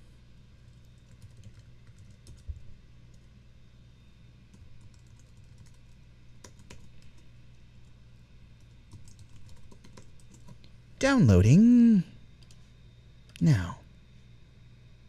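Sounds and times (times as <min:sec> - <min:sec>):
faint low hum: 0:00.0 - 0:15.0
computer keyboard key clicks: 0:08.9 - 0:10.7.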